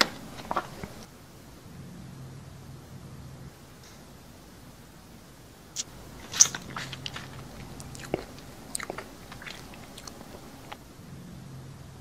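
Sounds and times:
person biting and chewing crunchy food: 5.8s - 10.8s.

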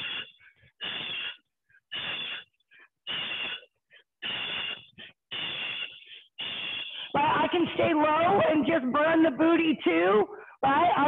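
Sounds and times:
heavy rhythmic breathing: 0.0s - 7.5s, 10.2s - 10.7s.

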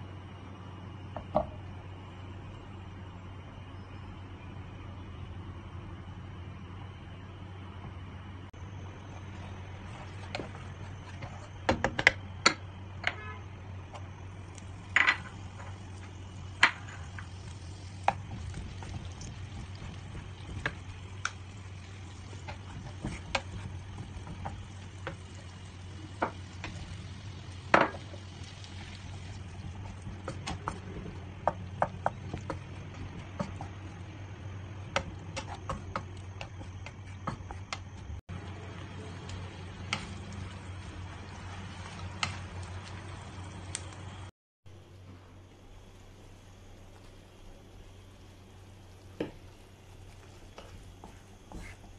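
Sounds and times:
steady low hum: 0.0s - 51.9s
wooden spatula stirring in frying pan: 8.9s - 12.2s, 13.1s - 44.3s, 48.9s - 51.9s
spatula tapping and scraping pan: 22.2s - 25.3s, 29.6s - 33.8s, 34.8s - 38.0s.

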